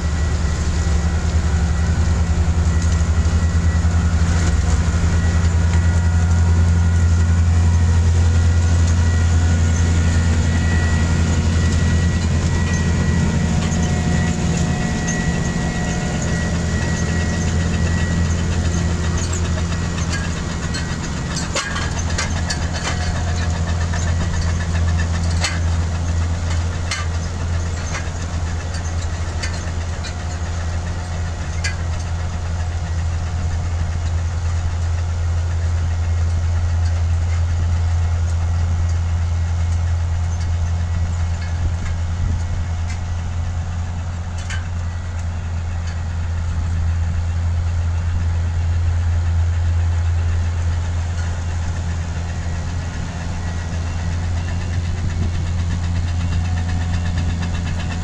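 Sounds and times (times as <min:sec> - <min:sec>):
harvester engine drone: 0:00.0 - 0:58.0.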